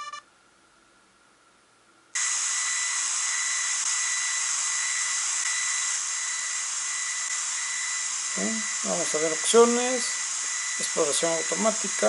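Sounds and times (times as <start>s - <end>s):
thin high tone: 0.0s - 0.3s
radio static hiss: 2.2s - 12.0s.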